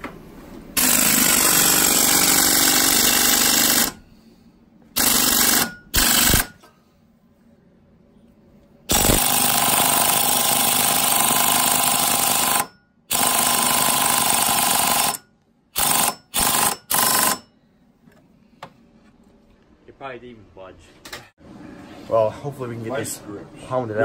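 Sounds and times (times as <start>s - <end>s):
air impact tool hammering: 0.8s - 4.0s, 5.0s - 6.7s, 8.9s - 17.5s.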